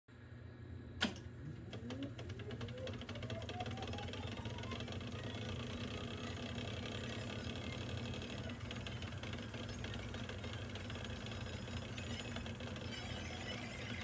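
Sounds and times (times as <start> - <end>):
tape deck switch click: 1.0 - 1.3
tape reels whirring: 1.0 - 14.0
fast even ticking: 1.7 - 14.0.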